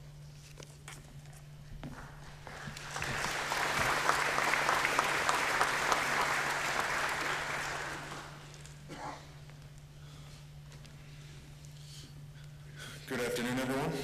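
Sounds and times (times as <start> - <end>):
audience applauding: 2.0 - 8.5.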